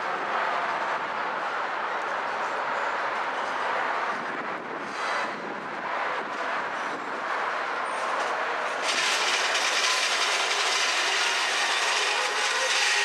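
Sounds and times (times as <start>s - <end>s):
steel wheels clattering on track: 7.9s - 13.0s.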